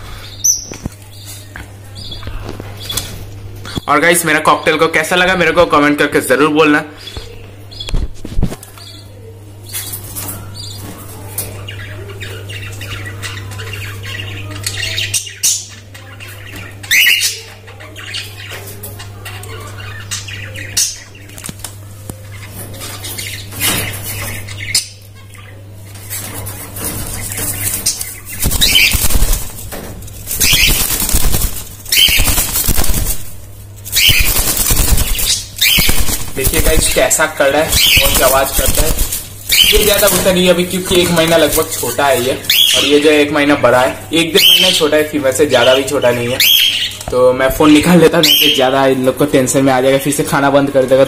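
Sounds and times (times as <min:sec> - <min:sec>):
birds flapping wings: 0:25.9 - 0:42.7.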